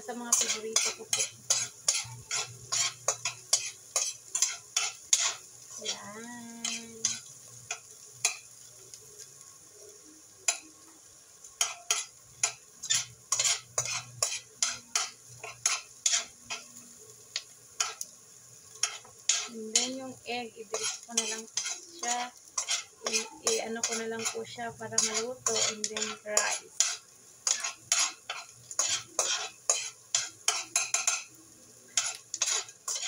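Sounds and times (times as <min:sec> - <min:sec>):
metal spoon scraping a pan: 0:00.0 - 0:08.7, 0:10.4 - 0:10.8, 0:11.6 - 0:18.1, 0:18.7 - 0:33.0
faint sizzle: 0:00.0 - 0:33.0.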